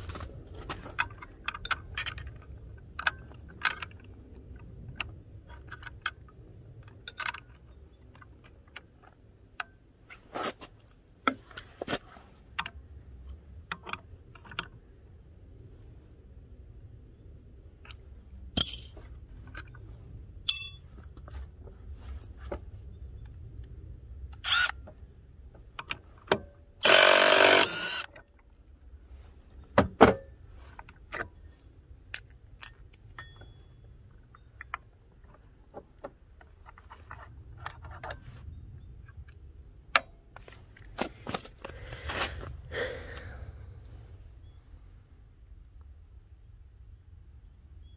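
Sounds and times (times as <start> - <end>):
steel on steel clinks: 20.5 - 20.9
metal parts clinking and knocking: 20.5 - 21.0, 30.8 - 39.4.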